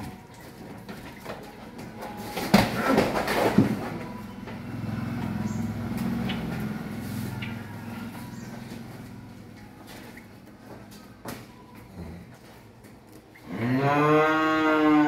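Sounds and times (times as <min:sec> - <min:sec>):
cow mooing: 0:13.4 - 0:15.0.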